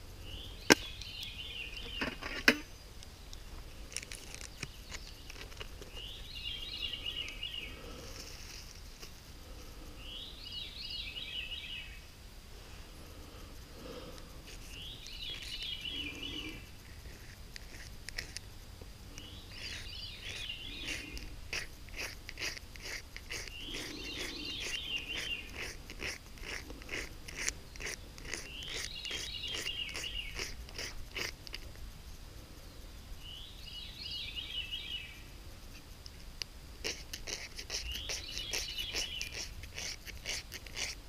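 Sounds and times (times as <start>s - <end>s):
songbird singing: 0.0s - 12.2s, 12.8s - 41.0s
sharp crunching clicks: 2.0s - 6.4s.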